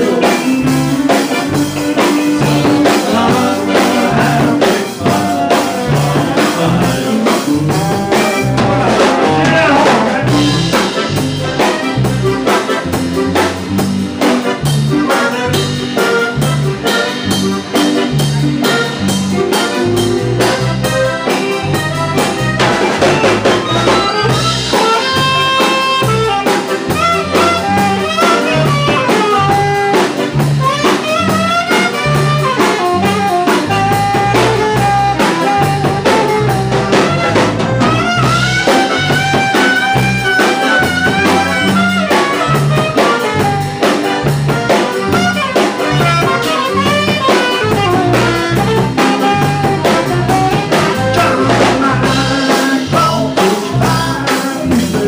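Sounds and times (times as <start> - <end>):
bass pulse: 0.0 - 55.0
drum kit: 0.0 - 55.0
saxophone melody: 0.0 - 55.0.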